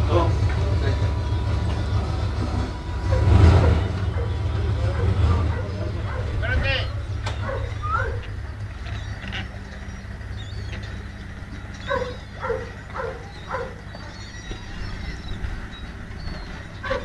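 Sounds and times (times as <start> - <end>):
steady low rumble: 0.0 - 17.0
dog barking: 3.0 - 8.4, 11.8 - 15.3, 16.2 - 17.0.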